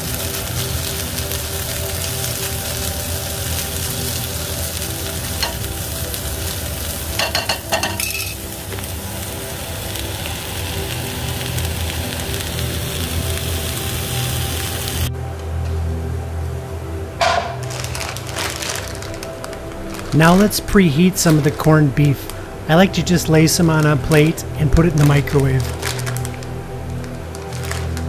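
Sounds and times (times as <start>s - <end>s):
sauerkraut sizzling in a skillet: 0.0s - 15.1s, 22.2s - 28.0s.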